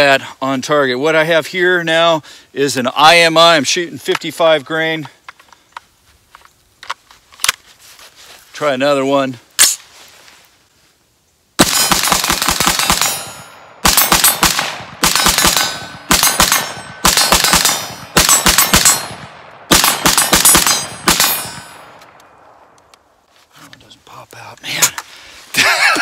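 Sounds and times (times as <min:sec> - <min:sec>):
rifle firing rapidly: 0:11.6 - 0:21.6.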